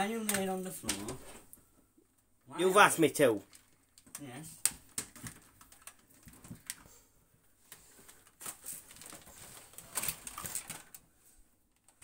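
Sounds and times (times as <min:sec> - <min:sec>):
vacuum cleaner being handled: 0:03.4 - 0:07.0, 0:07.7 - 0:11.1.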